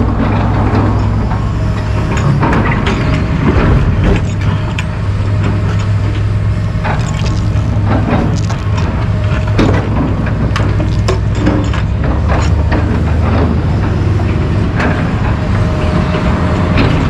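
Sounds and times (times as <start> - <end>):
excavator diesel engines running: 0.0 - 17.0
buckets clanking and scraping: 6.8 - 13.7.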